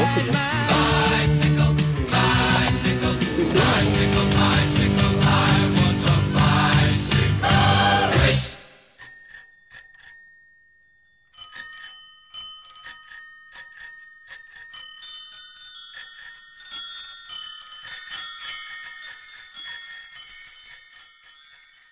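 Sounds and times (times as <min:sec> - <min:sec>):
high tinkling chimes: 0:08.8 - 0:21.9.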